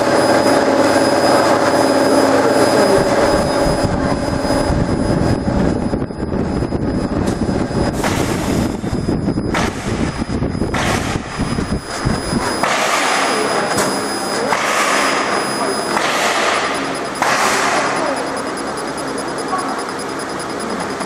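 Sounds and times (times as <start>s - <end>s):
faint high whine: 0.0s - 21.0s
laser machine rushing noise: 0.0s - 21.0s.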